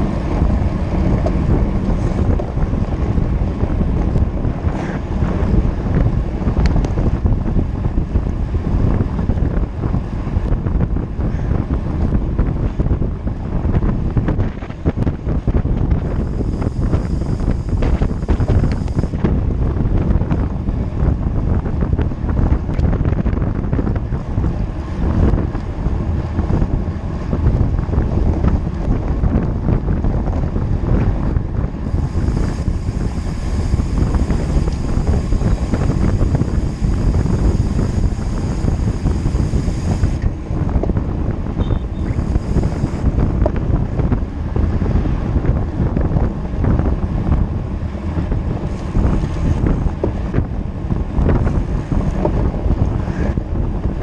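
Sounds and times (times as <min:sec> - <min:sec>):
steady low rumble: 0:00.0 - 0:54.0
wind buffeting microphone: 0:00.0 - 0:54.0
faint high whine: 0:16.1 - 0:19.2, 0:31.8 - 0:40.3, 0:41.6 - 0:43.1.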